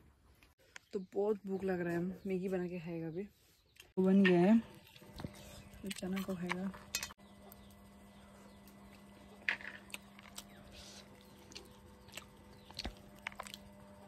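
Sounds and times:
steady low hum: 4.0s - 14.0s
person chewing food: 8.5s - 14.0s.

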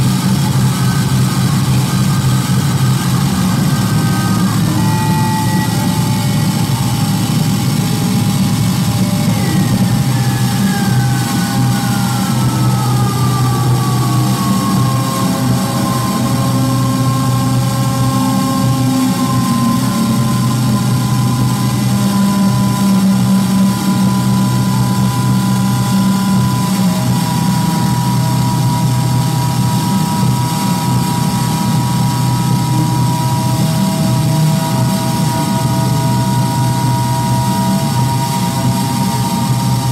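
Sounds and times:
low electronic rumble: 0.0s - 39.9s
high electronic tones: 1.9s - 29.0s.

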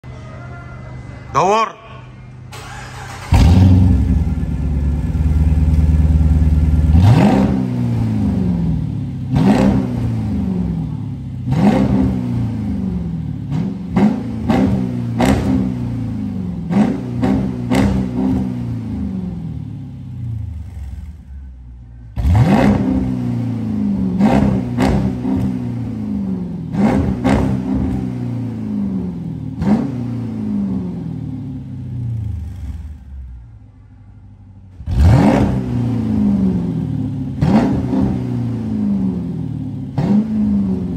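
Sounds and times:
engine idling: 2.3s - 7.1s
engine starting: 2.5s - 3.9s
engine revving in throttle blips: 2.6s - 33.5s, 34.7s - 40.9s.

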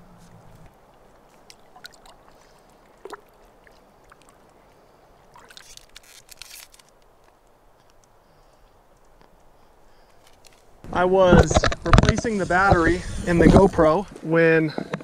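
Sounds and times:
water sloshing and trickling: 0.0s - 7.0s
splashing: 0.4s - 6.7s.

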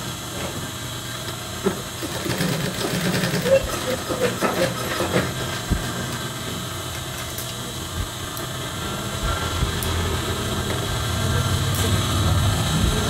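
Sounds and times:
sewing machine motor humming: 2.0s - 5.2s.

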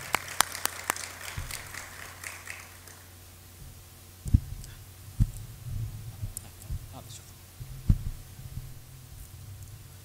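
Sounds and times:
sound system hum: 0.0s - 10.0s
microphone thumps: 1.4s - 1.7s, 3.6s - 9.4s.

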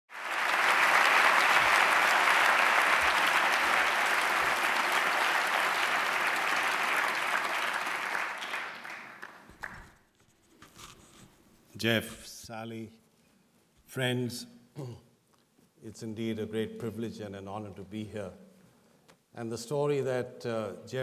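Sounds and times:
audience applauding: 0.1s - 10.0s.

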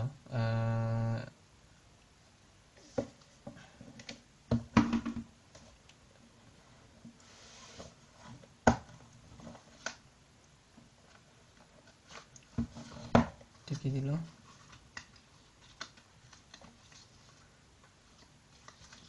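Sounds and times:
cardboard sliding rub: 7.1s - 8.4s.

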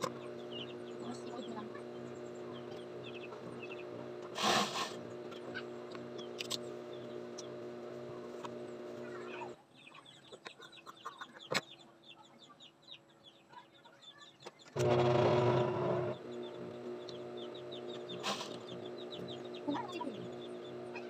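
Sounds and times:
sewing machine humming: 0.0s - 9.6s, 14.8s - 21.0s
chickens chirping: 0.0s - 21.0s.

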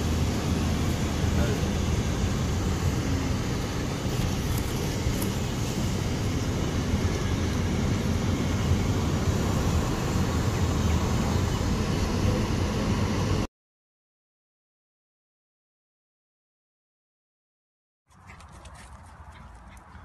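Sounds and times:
car wind and road noise: 0.0s - 13.5s.

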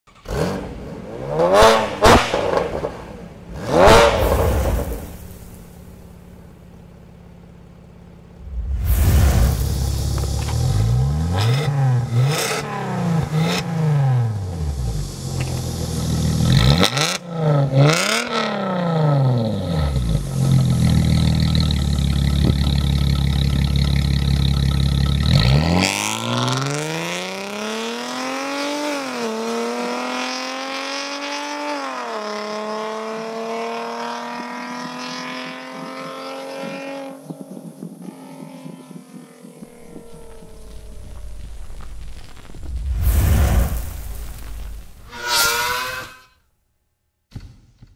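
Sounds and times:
car engine revving: 0.1s - 6.5s, 8.1s - 37.3s, 38.4s - 46.2s
exhaust cracks: 8.1s - 18.3s, 19.3s - 26.7s, 36.6s - 45.1s
car accelerating away: 8.4s - 43.8s.

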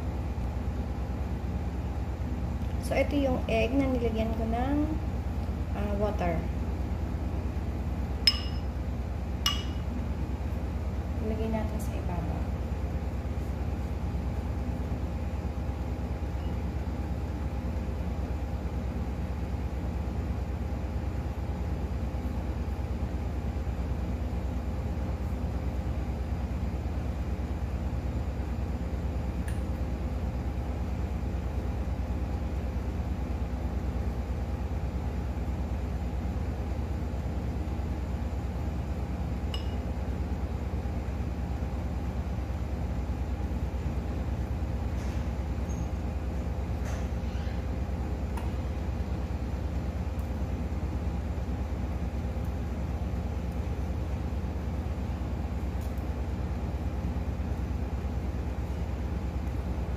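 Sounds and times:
low mechanical hum: 0.0s - 59.9s
faint constant tones: 7.7s - 12.6s
small glass container clink: 8.3s - 8.7s, 9.5s - 9.8s, 39.6s - 39.8s.

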